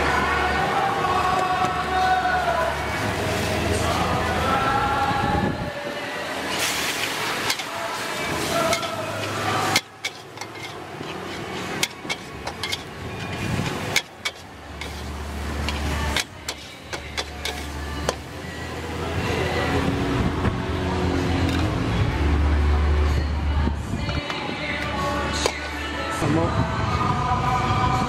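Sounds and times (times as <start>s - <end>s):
food sizzling: 6.3s - 18.6s
spatula scraping a wok: 6.5s - 18.3s.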